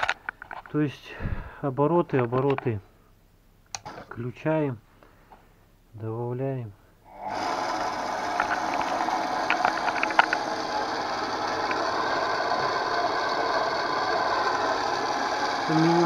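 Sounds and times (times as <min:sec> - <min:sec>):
electric motor driving gearbox: 0:07.1 - 0:16.0.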